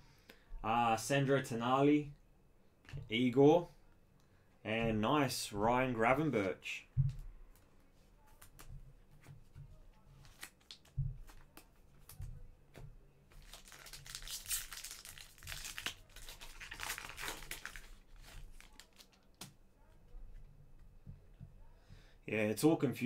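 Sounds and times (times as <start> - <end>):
wrapper tearing and crinkling: 10.2 - 10.9, 13.4 - 19.4.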